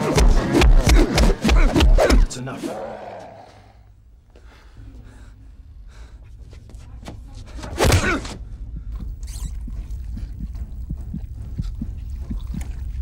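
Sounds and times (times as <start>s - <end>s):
low rumble: 8.4s - 13.0s.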